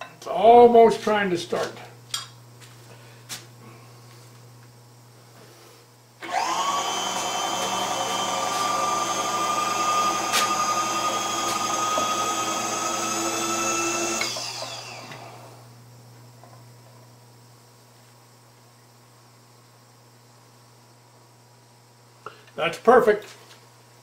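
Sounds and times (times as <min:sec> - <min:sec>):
electric motor whining: 0:06.2 - 0:15.6.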